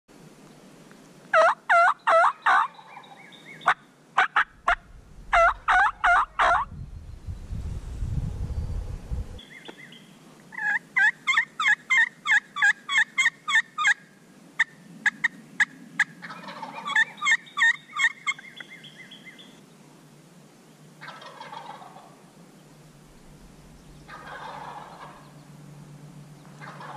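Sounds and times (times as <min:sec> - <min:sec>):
turkey calling: 0:01.4 - 0:06.7, 0:10.5 - 0:14.0, 0:14.6 - 0:19.5, 0:21.0 - 0:22.2, 0:23.8 - 0:25.4, 0:26.6 - 0:26.9
low rumble: 0:04.5 - 0:09.4, 0:22.8 - 0:26.6.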